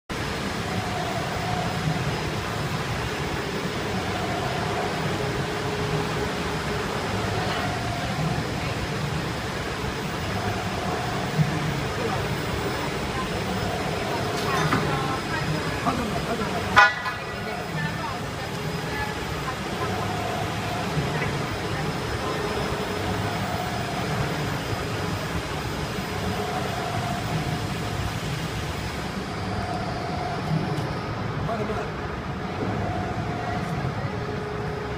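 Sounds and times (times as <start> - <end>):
machine hum and rumble: 0.1 - 34.9
faint whining tones: 0.2 - 34.9.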